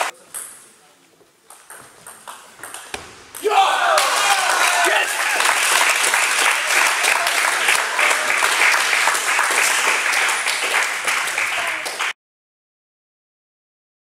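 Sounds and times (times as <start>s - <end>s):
applause: 4.0s - 12.2s.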